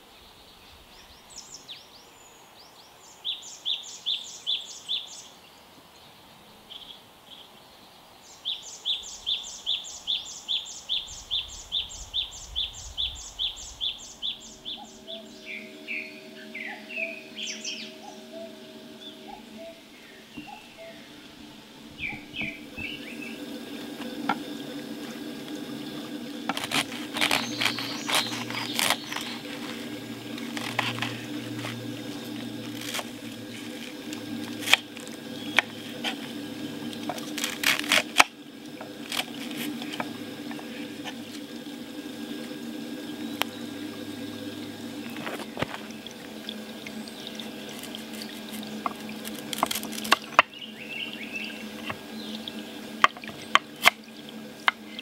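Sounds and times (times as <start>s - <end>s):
knife slicing cabbage: 26.4s - 35.0s, 37.1s - 40.1s, 47.8s - 50.3s
knife cutting sweet potato: 26.5s - 29.6s.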